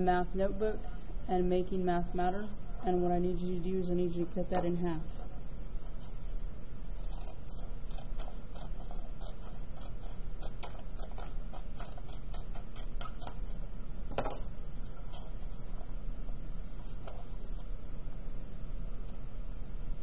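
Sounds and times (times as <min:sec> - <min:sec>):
scissors snipping paper: 0:07.1 - 0:13.5.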